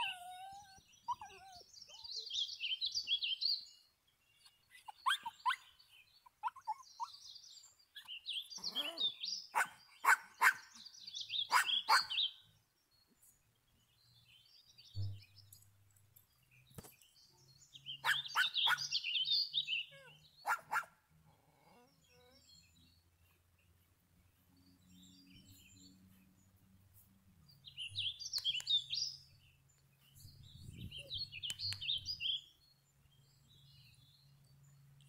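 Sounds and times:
small dog yipping and squealing: 0.0s - 2.2s, 4.7s - 5.6s, 6.4s - 7.2s, 8.6s - 10.6s, 11.5s - 12.2s, 18.0s - 18.9s, 19.9s - 20.9s.

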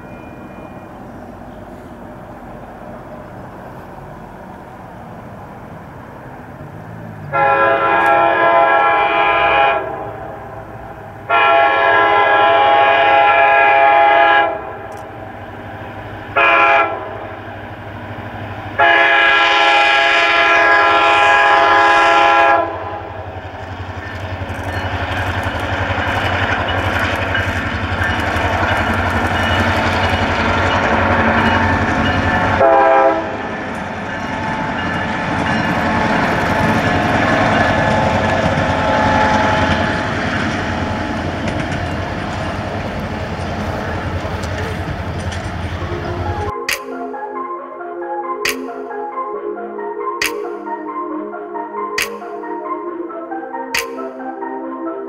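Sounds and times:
train rumbling past: 0.0s - 46.7s
locomotive air horn blasts: 7.3s - 10.6s, 11.3s - 14.9s, 16.3s - 17.4s, 18.8s - 23.2s, 32.4s - 33.6s.

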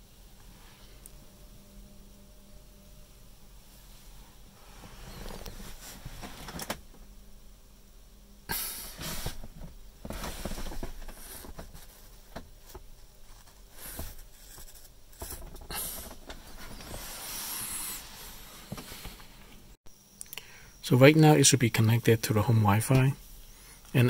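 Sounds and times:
rustling hissing noise: 0.0s - 1.3s, 3.3s - 19.8s
faint low hum: 0.0s - 24.0s.

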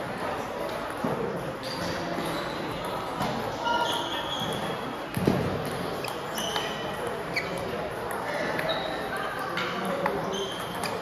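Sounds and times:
shoe squeaks on floor: 1.6s - 2.8s, 3.6s - 5.0s, 5.9s - 9.2s, 10.2s - 11.0s.

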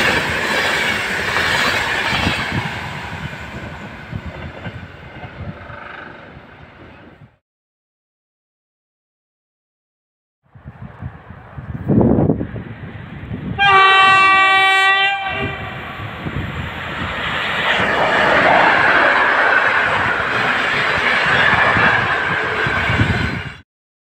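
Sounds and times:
train rushing past: 0.0s - 7.3s, 11.0s - 23.6s
train horn chord: 5.4s - 6.3s, 13.6s - 15.9s.

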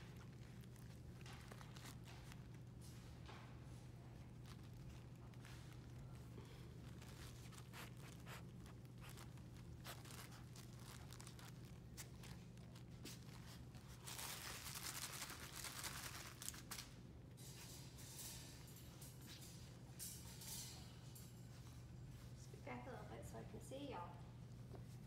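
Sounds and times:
puppies rustling on a blanket: 0.0s - 20.0s, 20.7s - 23.0s, 24.3s - 25.0s
steady low hum: 16.2s - 25.0s.

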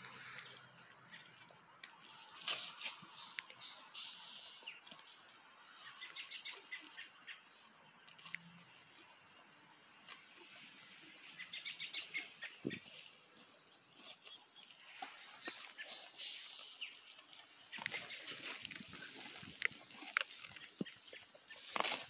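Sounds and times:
horse tearing grass: 2.1s - 3.2s, 14.0s - 22.0s.

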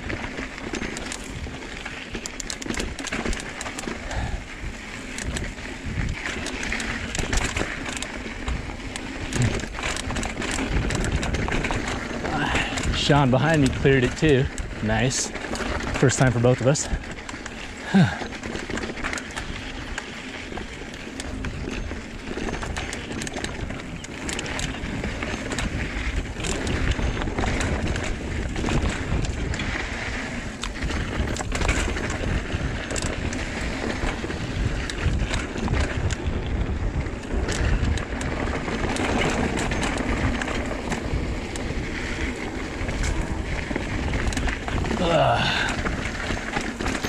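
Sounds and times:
bike chain and frame rattling: 0.0s - 47.0s
tyres rolling over dirt and rock: 0.0s - 47.0s
wind on microphone: 24.8s - 47.0s.

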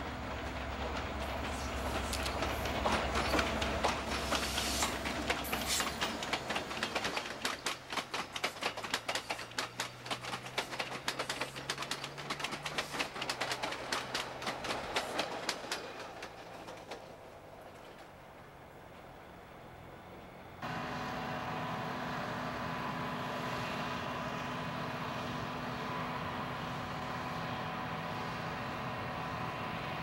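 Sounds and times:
train wheels clattering over rail joints: 0.0s - 19.3s
diesel locomotive engine drone: 0.0s - 30.0s.

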